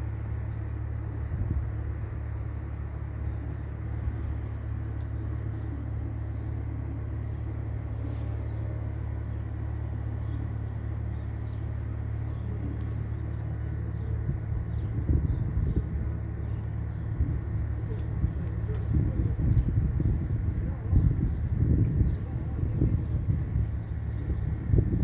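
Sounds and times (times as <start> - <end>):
motor rumble and hum: 0.0 - 25.0
faint clicks: 4.8 - 5.2.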